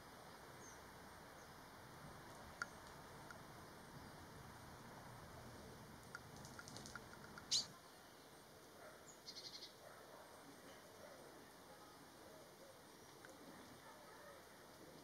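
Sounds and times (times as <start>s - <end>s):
bird high ticking notes: 7.2s - 7.7s.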